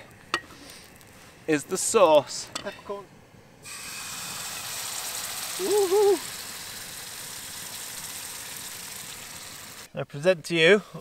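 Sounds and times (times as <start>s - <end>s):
gas stove hissing: 3.2s - 9.9s
person humming: 5.6s - 6.3s.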